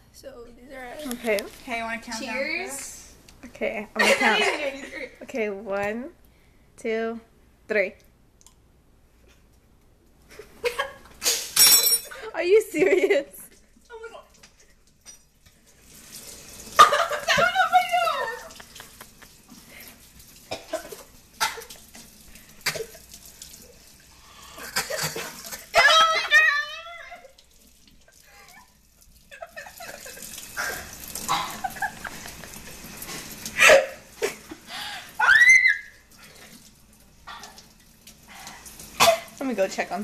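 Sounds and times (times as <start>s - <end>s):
coughs and splutters: 16.8s - 17.4s, 20.4s - 22.0s, 22.6s - 23.2s, 24.4s - 25.8s, 29.4s - 32.4s, 33.5s - 34.5s, 37.2s - 37.7s, 38.9s - 39.4s
wavering laugh: 16.8s - 19.4s, 28.1s - 32.6s.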